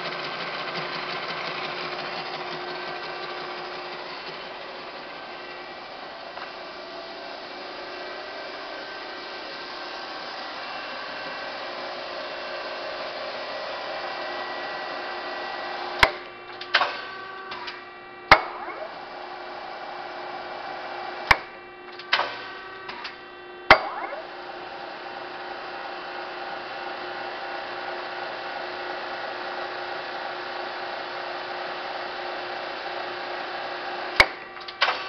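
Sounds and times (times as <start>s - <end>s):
shear motor humming: 0.0s - 21.5s.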